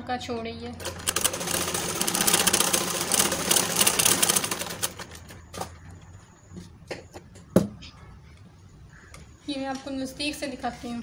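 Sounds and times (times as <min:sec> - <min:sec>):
sewing machine stitching: 0:00.8 - 0:05.7.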